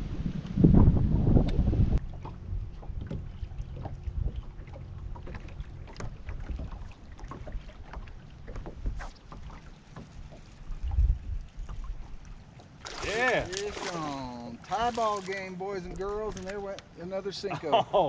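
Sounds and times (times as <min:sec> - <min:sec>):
low wind rumble: 0:00.0 - 0:09.1, 0:10.5 - 0:13.5
water lapping against boat hull: 0:01.4 - 0:17.2.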